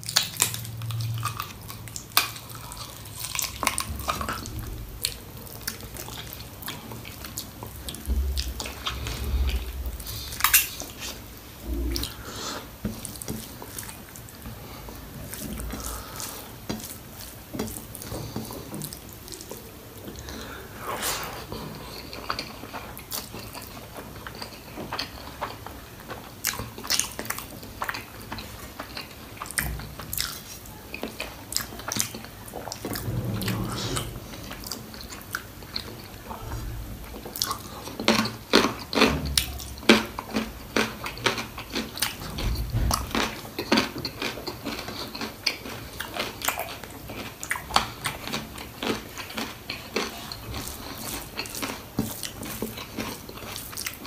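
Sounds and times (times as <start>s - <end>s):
dull low thumps: 3.8s - 5.6s, 8.0s - 10.4s, 11.6s - 12.2s, 32.8s - 35.6s, 42.4s - 43.2s
wet chewing and biting: 37.1s - 54.0s.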